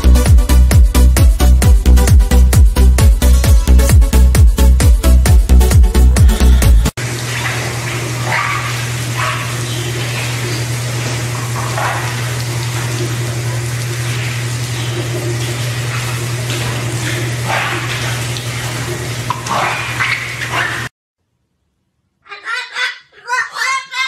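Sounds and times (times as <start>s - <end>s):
water spraying hiss: 7.0s - 20.8s.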